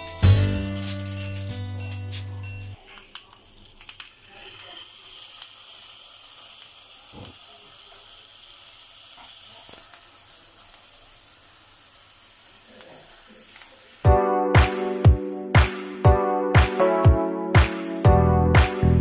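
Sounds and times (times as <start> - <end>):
steak sizzling in butter: 3.6 - 14.1.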